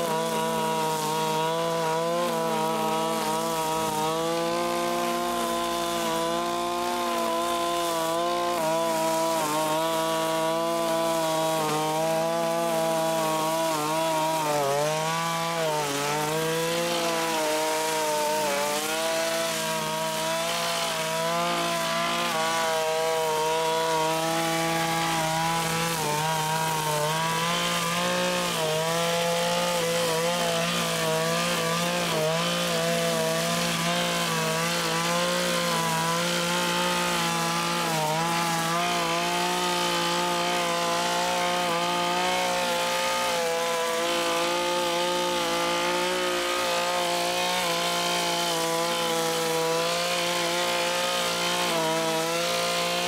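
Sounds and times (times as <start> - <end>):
brush cutter engine running: 0.0 - 53.0
cutter mowing grass: 0.0 - 53.0.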